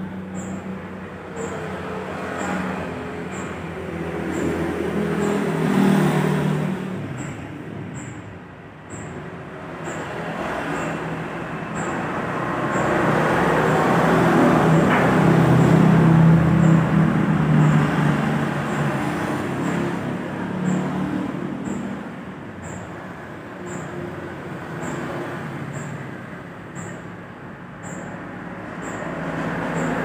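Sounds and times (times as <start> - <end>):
motorcycle passing: 0.0 - 8.0
minibus passing: 0.0 - 30.0.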